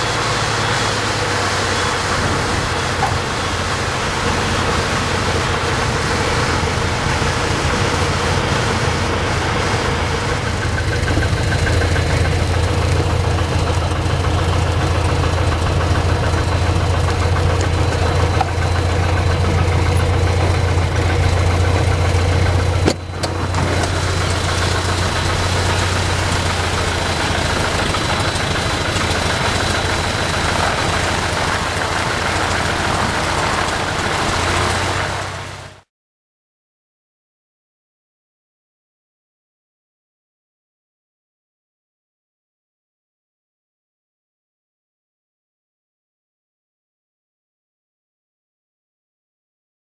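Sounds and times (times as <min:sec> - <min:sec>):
aircraft engine running: 0:00.0 - 0:35.9.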